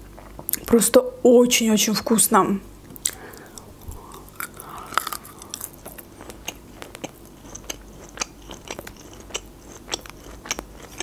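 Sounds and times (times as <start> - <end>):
wet mouth chewing clicks: 2.9 - 11.0.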